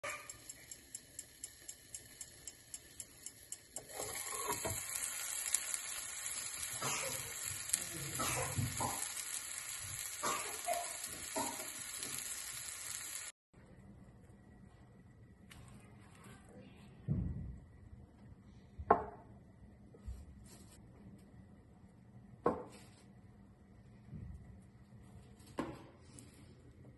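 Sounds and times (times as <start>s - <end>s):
faint even ticks: 0.0s - 4.1s
food sizzling in a pot: 0.0s - 13.4s.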